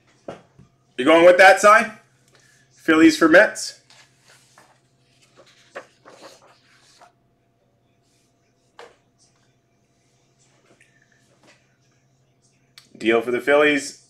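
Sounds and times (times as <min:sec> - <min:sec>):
steady low hum: 0:03.8 - 0:13.0.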